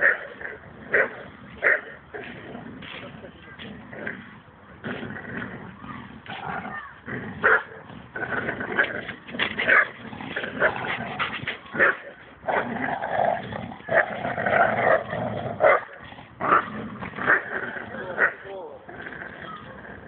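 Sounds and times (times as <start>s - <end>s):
dogs growling: 0.0s - 20.0s
dogs barking: 7.4s - 7.9s, 13.9s - 18.5s.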